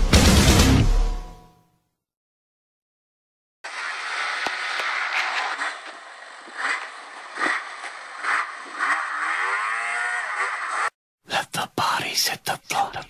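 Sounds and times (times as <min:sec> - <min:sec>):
snowmobile engine revving: 0:03.7 - 0:11.0.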